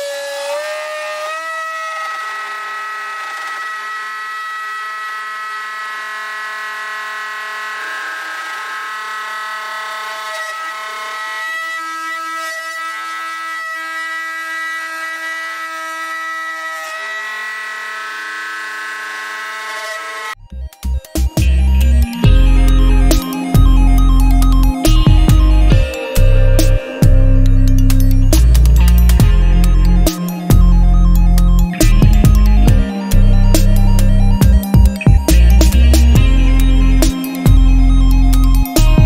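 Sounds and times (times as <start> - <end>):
router spindle motor whine: 0.0 - 20.4, 21.4 - 39.0
low machine tone changing pitch: 20.4 - 39.0.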